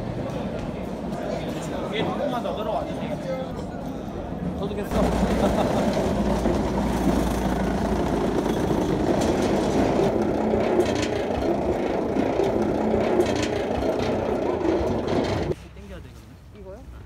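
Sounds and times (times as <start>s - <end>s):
wheels rumbling over ridged surface: 4.7s - 15.6s.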